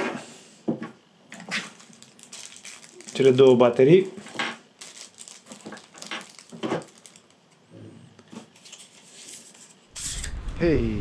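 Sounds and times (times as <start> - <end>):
plastic parts clicking and rustling: 1.4 - 7.6.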